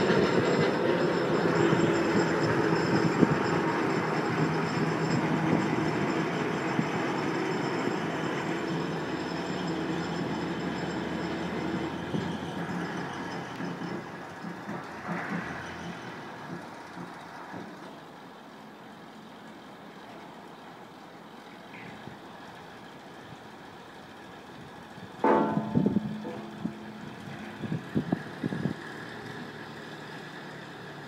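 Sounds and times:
diesel engine running: 0:00.0 - 0:31.0
wheels knocking over rails: 0:25.2 - 0:28.7.

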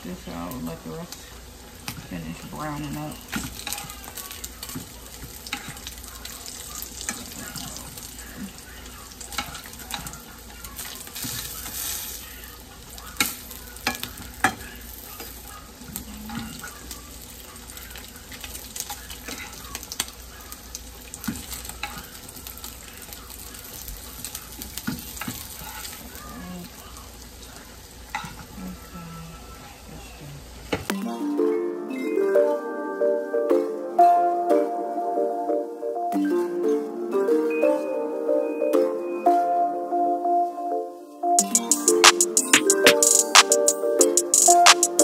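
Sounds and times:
bacon sizzling in a frying pan: 0:00.6 - 0:28.6.

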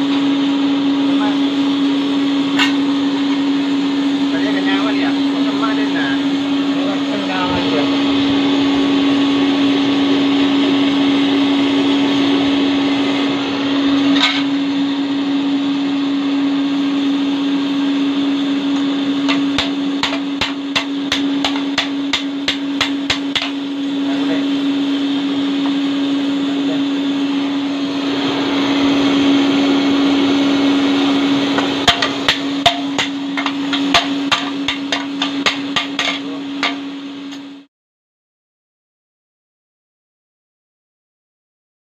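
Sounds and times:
electric blower humming: 0:00.0 - 0:37.7
hammer blows on hot metal: 0:18.7 - 0:24.6, 0:30.8 - 0:37.1.

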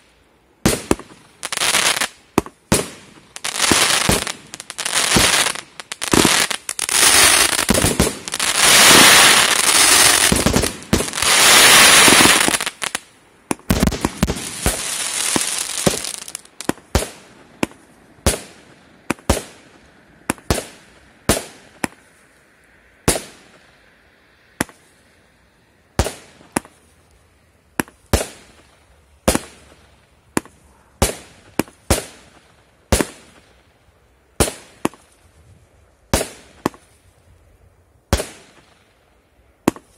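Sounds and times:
fireworks crackling: 0:00.0 - 0:22.4
firework bangs: 0:00.7 - 0:22.0.

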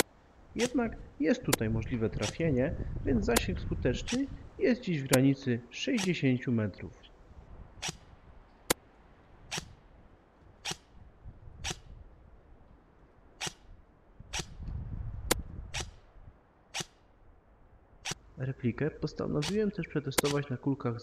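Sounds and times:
wind rumble on microphone: 0:00.9 - 0:04.7, 0:07.3 - 0:08.4, 0:10.8 - 0:12.7, 0:13.5 - 0:16.4.

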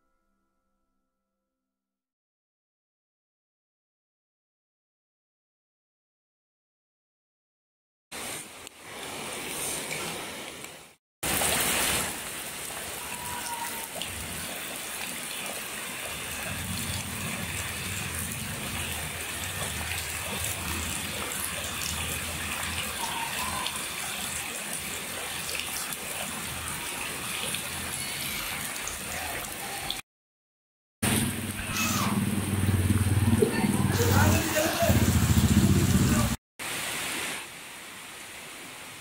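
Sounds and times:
rain falling on water: 0:08.2 - 0:30.0, 0:31.0 - 0:39.0.

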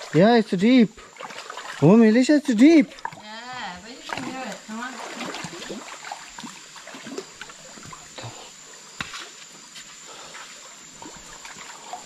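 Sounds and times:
running water: 0:00.0 - 0:12.0
small splashes: 0:00.9 - 0:08.3, 0:10.2 - 0:12.0
feet wading in water: 0:00.9 - 0:12.0.

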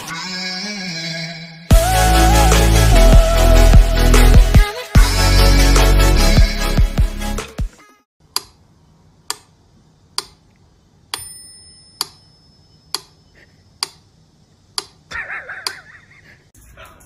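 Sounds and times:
sharp single ticks: 0:10.1 - 0:11.2, 0:13.8 - 0:14.1
thin ringing tone: 0:11.1 - 0:13.4.

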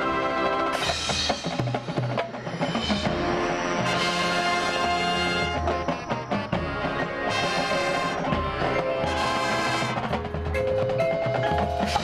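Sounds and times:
marching band chords: 0:00.0 - 0:12.0
sharp percussion strikes: 0:00.7 - 0:12.0
marimbas and mallet percussion: 0:10.1 - 0:12.0.

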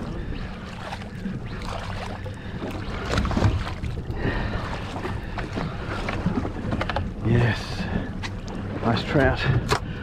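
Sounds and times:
water lapping: 0:00.0 - 0:10.0
wind: 0:00.0 - 0:10.0.

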